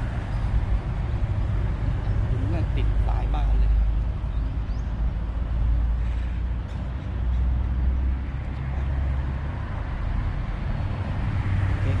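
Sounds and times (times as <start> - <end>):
traffic rumble on bridge: 0.0 - 12.0.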